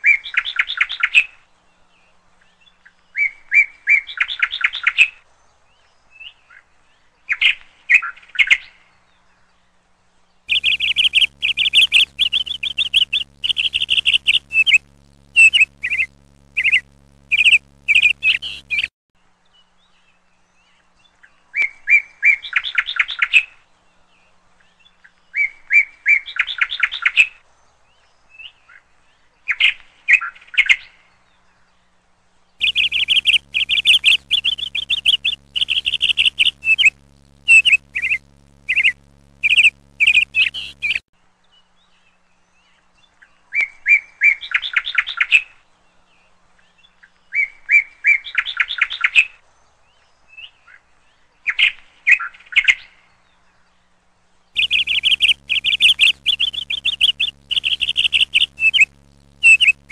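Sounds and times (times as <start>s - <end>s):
low steady hum: 10.5s - 18.9s, 32.6s - 41.0s, 54.6s - 59.9s
small birds chirping: 10.5s - 18.9s, 32.6s - 41.0s, 54.6s - 59.9s.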